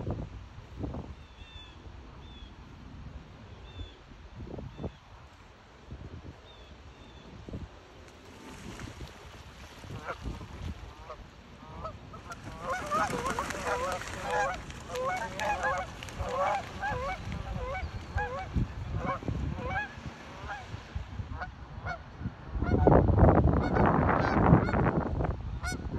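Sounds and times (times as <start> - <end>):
geese honking: 11.0 - 20.6.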